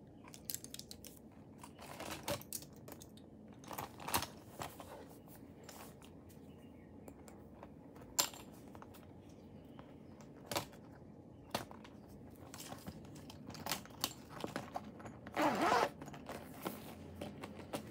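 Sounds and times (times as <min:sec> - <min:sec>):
zipper zipping: 0:15.3 - 0:16.0.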